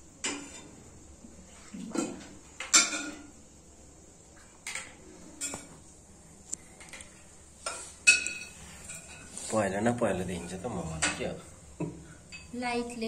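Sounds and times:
spoons and dishes clinking: 0:07.6 - 0:09.4.

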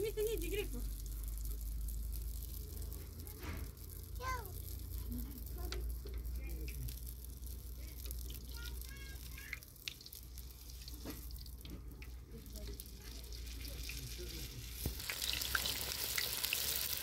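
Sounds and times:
pastries frying in hot oil: 0:00.0 - 0:17.0
tongs turning food: 0:00.9 - 0:17.0.

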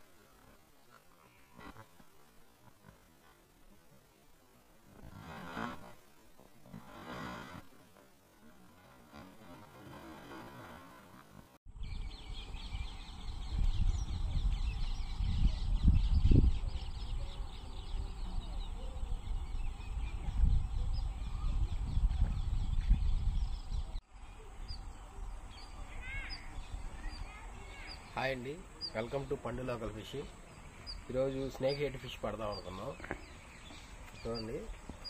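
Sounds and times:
small birds chirping: 0:11.1 - 0:35.0
wind on microphone: 0:11.7 - 0:28.1.

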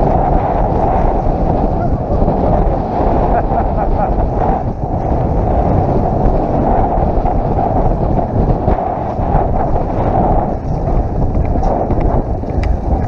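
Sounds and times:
bike tyres rumbling on dirt: 0:00.0 - 0:13.0
wind buffeting microphone: 0:00.0 - 0:13.0
bike rattling and knocking: 0:09.1 - 0:13.0.

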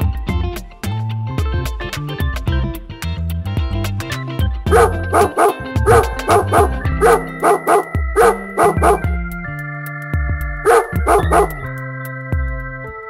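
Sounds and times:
background music with held chords: 0:00.0 - 0:13.0
puppy barking: 0:04.7 - 0:09.1, 0:10.7 - 0:11.7.

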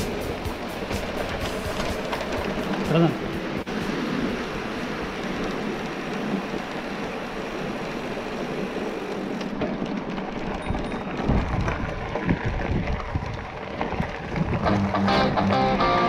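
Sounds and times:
bicycle tyres rushing: 0:00.0 - 0:16.0
tyres rumbling over gravel: 0:00.0 - 0:16.0
wind on microphone: 0:10.5 - 0:15.5.

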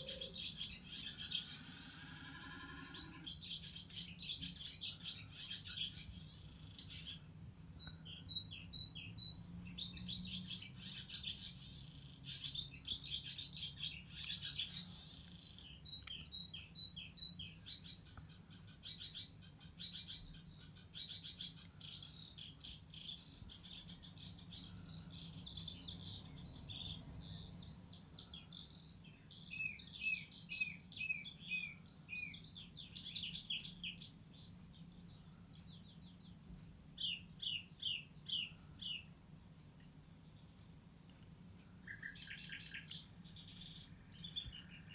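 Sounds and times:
recorded bird song through speaker: 0:00.0 - 0:44.9.

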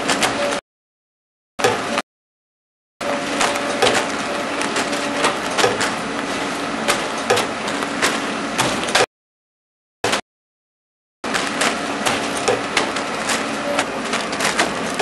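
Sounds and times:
machine hum: 0:03.0 - 0:09.1, 0:11.3 - 0:15.0.

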